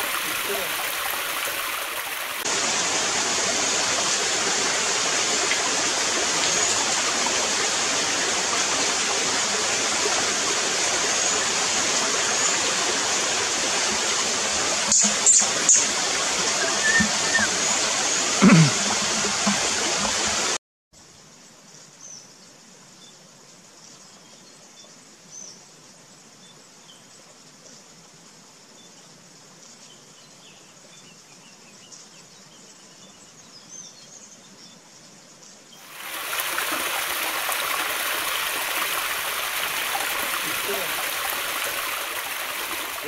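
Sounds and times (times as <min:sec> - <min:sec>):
waterfall splashing into stream: 0:00.0 - 0:20.6, 0:35.8 - 0:43.0.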